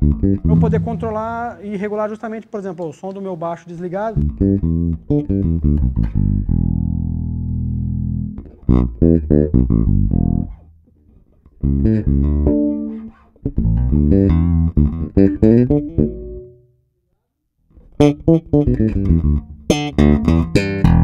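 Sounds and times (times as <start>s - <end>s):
electric bass guitar notes: 0.0s - 1.9s, 4.2s - 10.6s, 11.6s - 16.6s, 18.0s - 21.0s.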